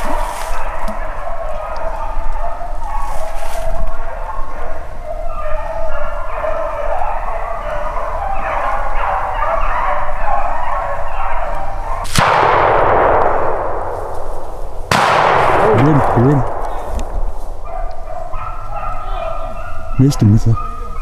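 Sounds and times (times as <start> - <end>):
dogs baying: 0.0 - 21.0
shotgun shot: 12.1 - 17.6.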